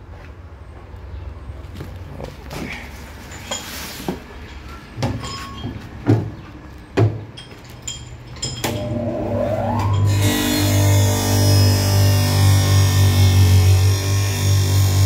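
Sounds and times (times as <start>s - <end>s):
electric motor whine: 8.8s - 15.0s.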